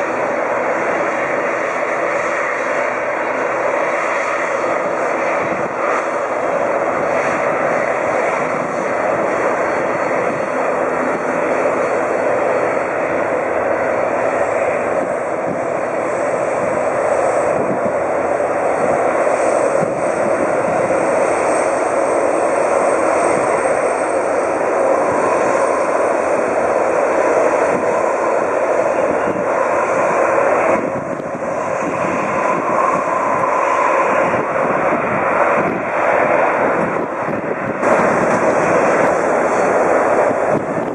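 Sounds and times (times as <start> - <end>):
faint high jet whine: 0.0 - 40.9
jet engines roaring: 0.0 - 40.9.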